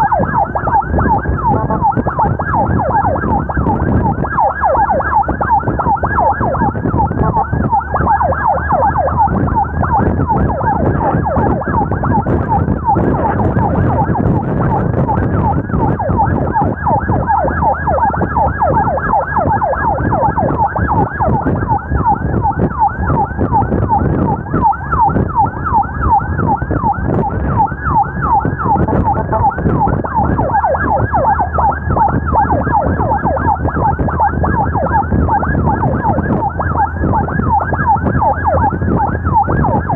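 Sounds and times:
ambulance siren yelping: 0.0 - 39.9
road and engine noise: 0.0 - 39.9.

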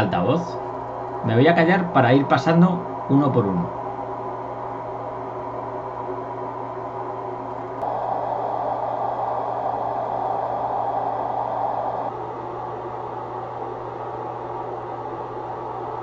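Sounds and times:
steady low hum: 0.0 - 16.0
pink noise test tone hissing: 7.8 - 12.1.

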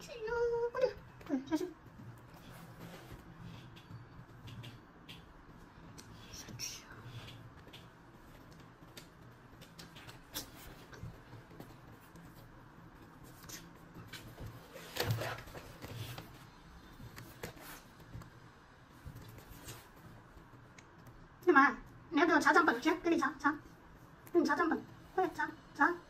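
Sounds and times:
cat rustling and tapping: 0.8 - 21.4.

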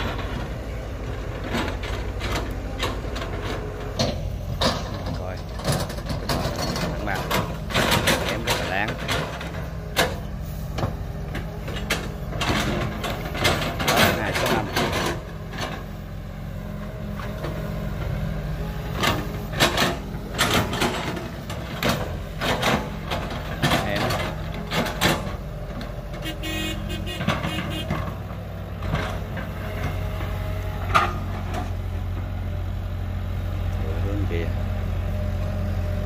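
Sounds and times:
excavator diesel engines running: 0.0 - 36.0
excavator bucket clanks and knocks: 1.4 - 16.0, 19.0 - 26.3, 27.0 - 30.1, 30.8 - 31.8.

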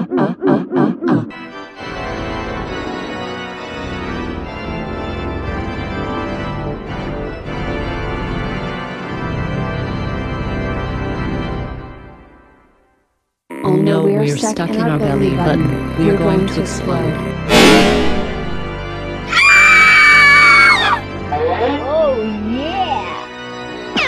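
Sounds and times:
organ music: 1.3 - 12.6, 13.6 - 19.4, 21.0 - 24.0.

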